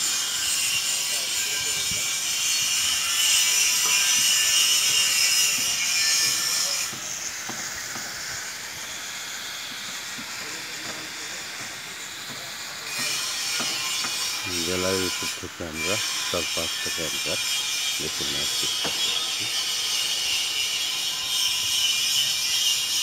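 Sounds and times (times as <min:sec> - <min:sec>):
high-pitched hiss: 0:00.0 - 0:23.0.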